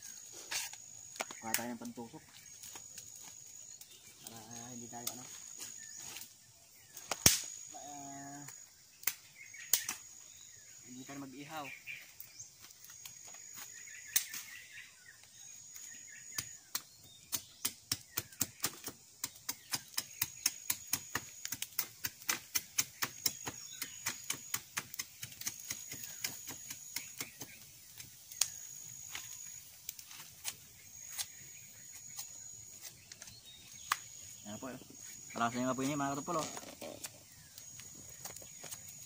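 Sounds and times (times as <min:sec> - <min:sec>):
machete chopping wood: 0:07.1 - 0:07.5, 0:16.4 - 0:27.6.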